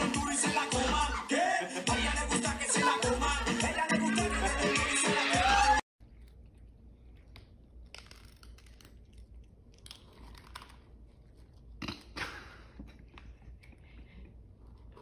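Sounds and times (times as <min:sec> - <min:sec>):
cats crunching dry kibble: 0:06.0 - 0:12.0.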